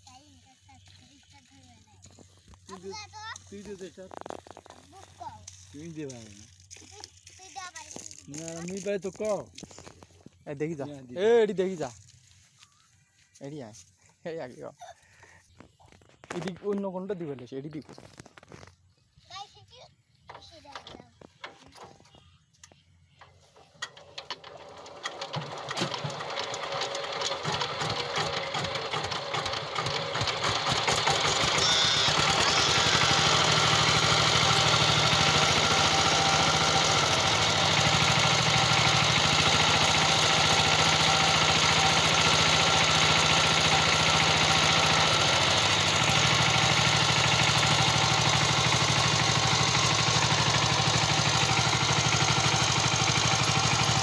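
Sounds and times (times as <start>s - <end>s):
diesel engine starting: 23.6s - 54.0s.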